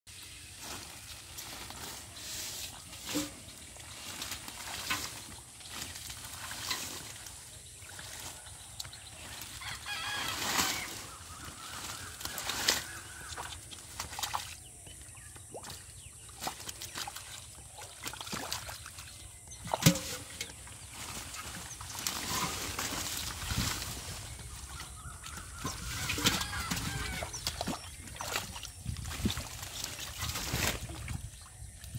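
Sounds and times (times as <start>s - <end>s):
water splashing: 0.6s - 31.9s
rooster crowing: 9.6s - 11.0s, 25.8s - 27.4s
chickens clucking: 23.5s - 27.8s.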